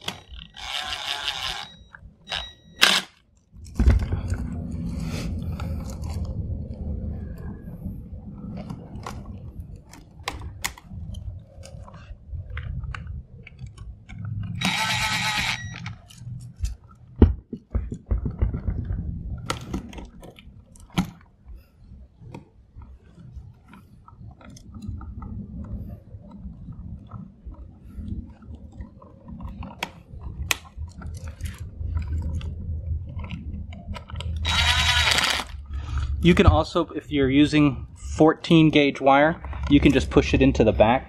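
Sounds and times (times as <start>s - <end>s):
cordless drill whirring: 0.0s - 3.1s, 14.6s - 15.9s, 34.4s - 35.6s
rustling and crinkling wires: 3.2s - 14.6s, 15.6s - 40.7s.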